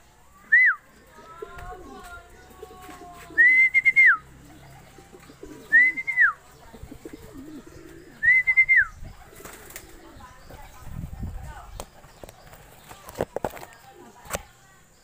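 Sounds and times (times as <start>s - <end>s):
person whistling: 0.5s - 0.8s, 3.4s - 4.2s, 5.7s - 6.4s, 8.2s - 8.9s
pigeons cooing: 0.8s - 14.4s.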